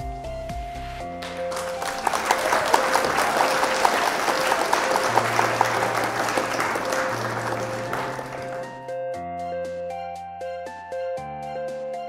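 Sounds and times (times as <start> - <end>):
background music: 0.0 - 12.0
crowd clapping: 1.2 - 8.9.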